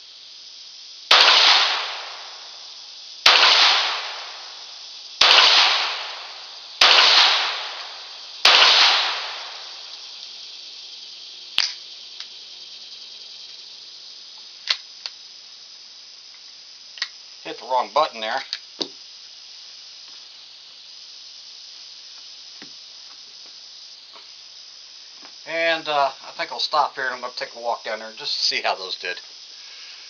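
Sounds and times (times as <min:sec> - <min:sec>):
pistol shots with echo: 0:01.1 - 0:02.3, 0:03.3 - 0:04.5, 0:05.2 - 0:09.7
pistol handling clicks: 0:11.6 - 0:12.3.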